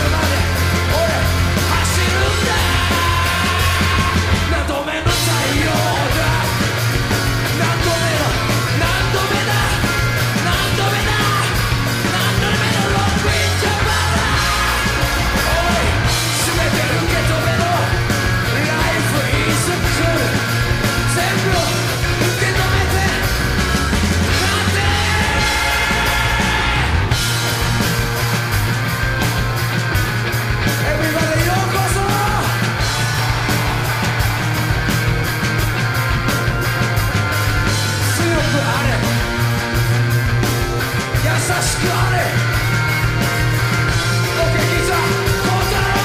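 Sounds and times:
man singing close to shouting: 0.0s - 6.6s, 7.6s - 17.9s, 21.1s - 23.2s, 24.3s - 27.0s, 41.2s - 42.4s, 44.3s - 46.0s
heavy bass line: 0.0s - 46.0s
rock band playing: 0.0s - 46.0s.

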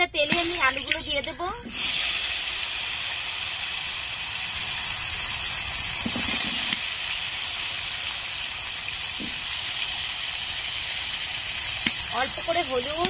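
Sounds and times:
potatoes sizzling in hot oil: 0.2s - 13.0s.

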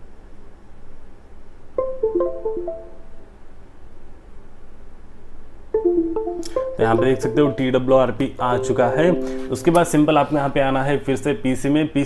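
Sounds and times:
plucked string notes: 5.8s - 10.0s.

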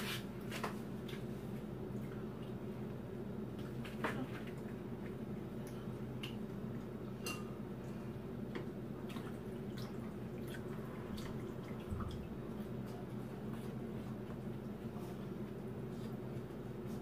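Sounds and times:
steady low hum: 0.0s - 17.0s
broth simmering: 4.6s - 16.6s.

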